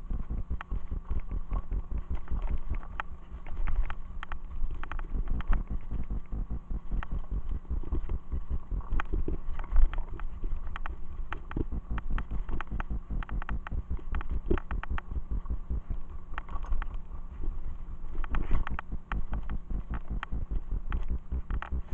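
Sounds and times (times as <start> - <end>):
bike tyre rumble: 0.0 - 21.9
bike clicks and rattles: 1.9 - 17.0.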